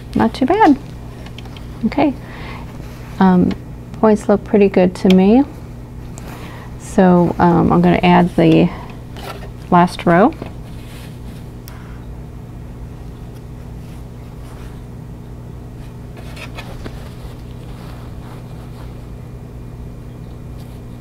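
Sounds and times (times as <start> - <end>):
low electrical hum: 0.0 - 21.0
fabric rustling: 15.8 - 19.1.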